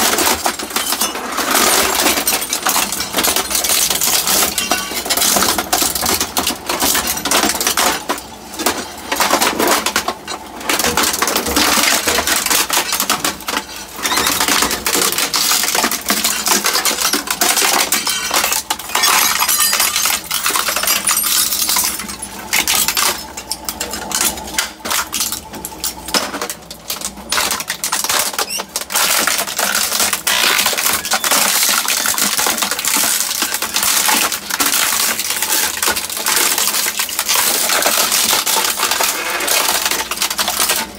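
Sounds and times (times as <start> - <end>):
plastic fragments clinking: 0.0 - 40.9
shredder cracking plastic: 0.0 - 40.9.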